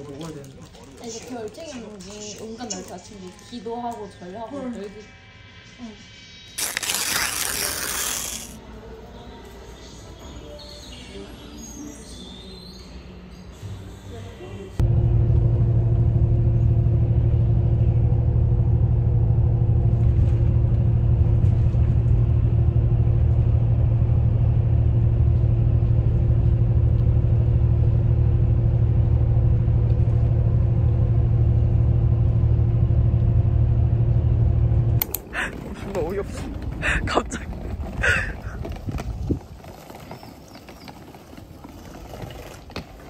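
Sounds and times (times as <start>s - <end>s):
constant hum: 13.0s - 43.0s
moving vehicle rumble: 14.8s - 43.0s.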